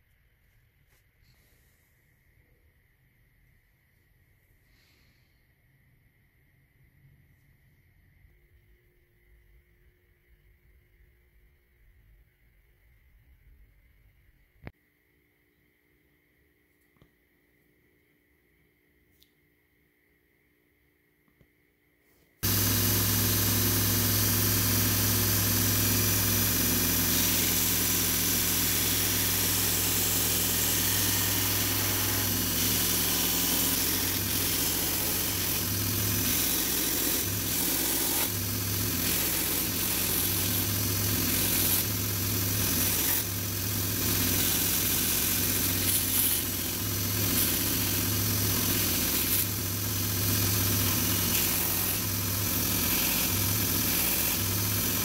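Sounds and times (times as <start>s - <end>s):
belt grinder motor hum: 22.4s - 55.0s
wood sanding on grinder belt: 22.4s - 55.0s.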